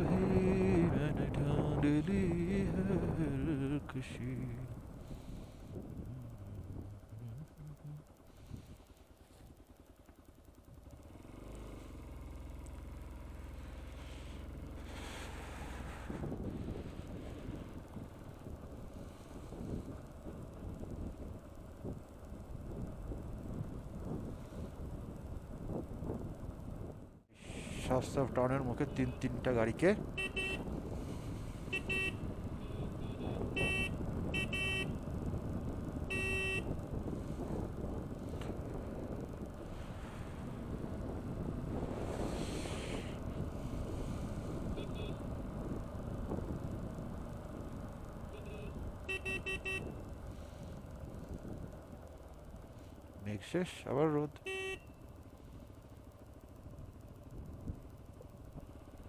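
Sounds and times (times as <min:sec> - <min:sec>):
motorcycle engine running: 0:00.0 - 0:59.0
wind noise: 0:15.0 - 0:22.0, 0:22.6 - 0:28.0, 0:30.1 - 0:47.1
vehicle horn beeps: 0:30.1 - 0:30.7, 0:31.7 - 0:35.0, 0:36.0 - 0:36.8, 0:44.7 - 0:45.2, 0:48.3 - 0:50.0, 0:54.4 - 0:55.0.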